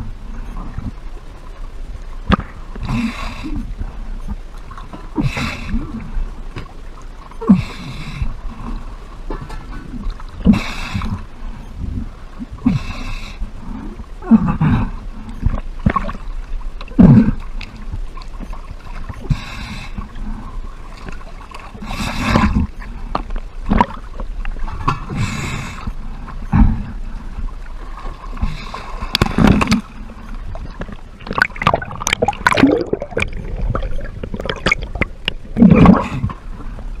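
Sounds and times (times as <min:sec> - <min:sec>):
water sloshing and gurgling: 0:00.0 - 0:37.0
water splashes: 0:15.1 - 0:37.0.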